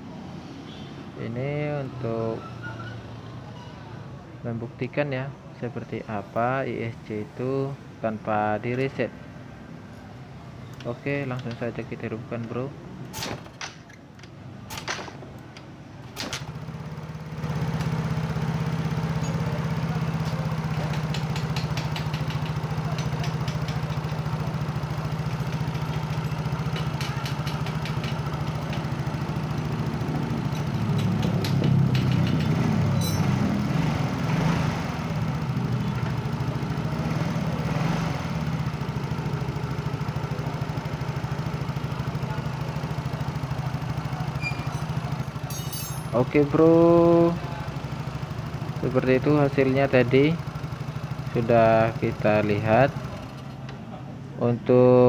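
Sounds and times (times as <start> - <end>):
scooter engine starting and idling: 14.7 - 53.9.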